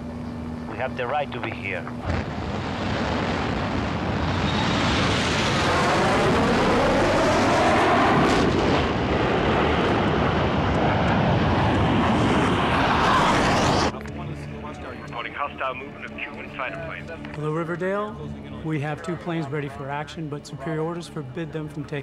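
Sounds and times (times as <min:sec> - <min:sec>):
jet fighter roaring: 0:01.9 - 0:13.9.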